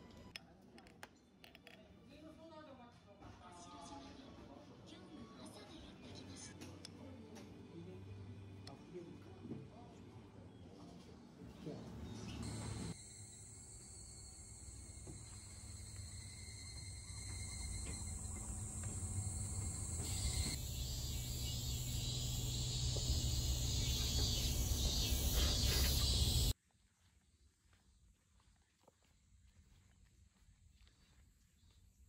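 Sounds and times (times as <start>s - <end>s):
insects droning shrilly: 12.4s - 26.5s.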